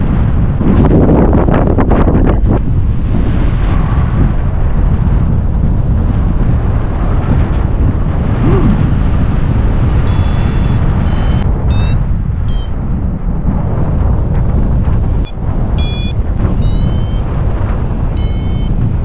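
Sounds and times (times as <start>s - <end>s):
wind buffeting microphone: 0.0s - 19.0s
variometer beeping: 10.0s - 12.8s, 15.2s - 17.3s, 18.1s - 18.8s.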